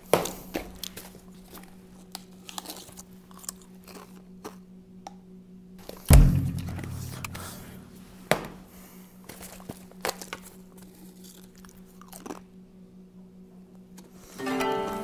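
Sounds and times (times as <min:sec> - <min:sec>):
deep booming hit: 0:06.1 - 0:08.0.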